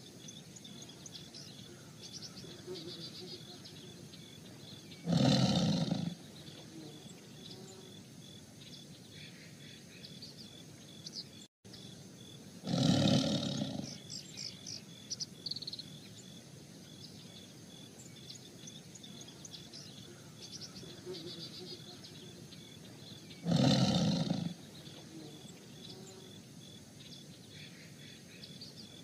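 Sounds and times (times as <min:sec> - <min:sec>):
tigers growling: 0:04.9 - 0:06.3, 0:12.6 - 0:14.1, 0:23.3 - 0:24.6.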